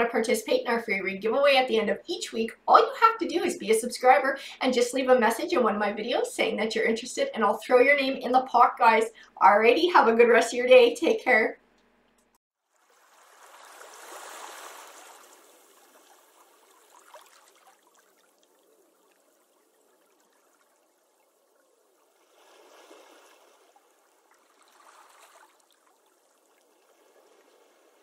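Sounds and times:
water trickling: 12.6s - 28.0s.

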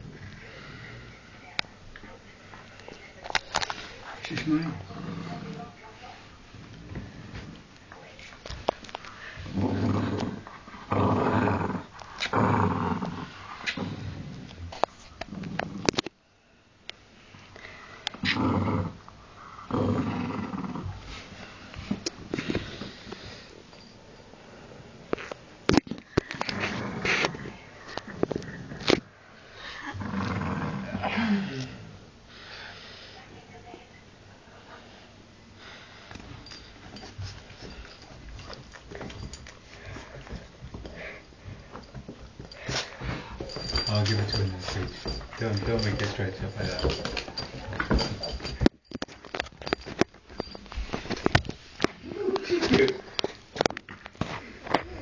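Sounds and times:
small dog play-growling: 4.2s - 5.8s, 9.4s - 16.0s, 18.2s - 21.2s, 26.3s - 29.1s, 29.8s - 31.9s
clicks and rustles: 41.5s - 55.0s.

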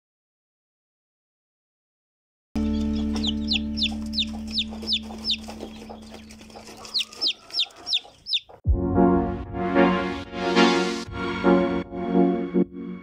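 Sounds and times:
chick peeping: 2.6s - 8.6s.

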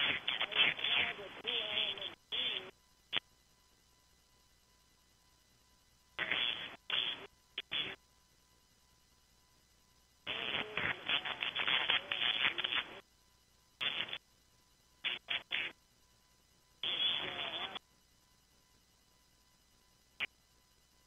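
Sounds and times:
thin voice over radio: 0.0s - 2.7s, 10.3s - 13.0s, 16.8s - 17.8s.

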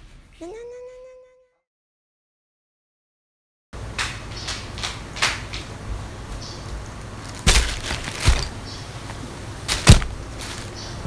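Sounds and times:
plastic bag crinkling: 7.1s - 10.8s
bags thudding on bed: 7.3s - 8.6s, 9.7s - 10.7s.

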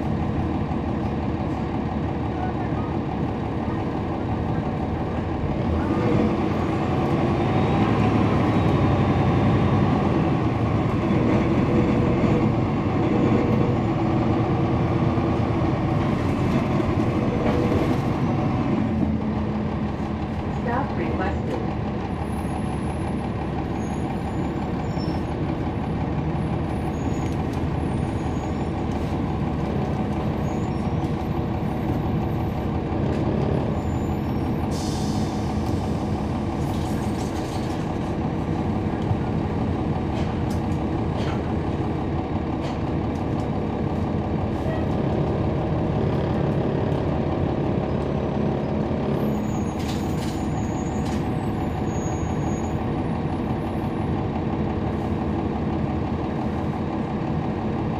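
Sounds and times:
bus diesel engine droning: 0.0s - 57.9s
air brake hiss: 34.7s - 36.0s.

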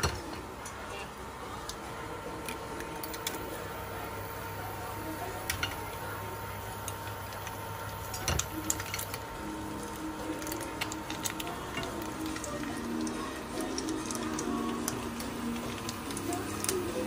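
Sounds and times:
faint sizzling: 0.0s - 17.0s
induction cooktop humming: 0.0s - 17.0s.

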